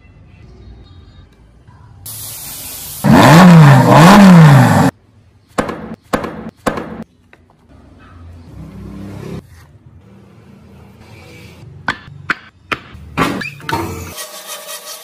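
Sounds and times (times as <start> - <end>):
hiss: 2.1 - 3.5
car engine revving: 3.0 - 4.9.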